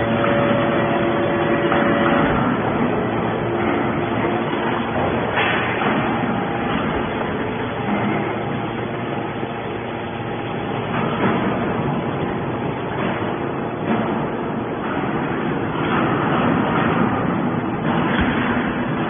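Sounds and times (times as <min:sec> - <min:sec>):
hydraulic baler running: 0:00.0 - 0:19.0.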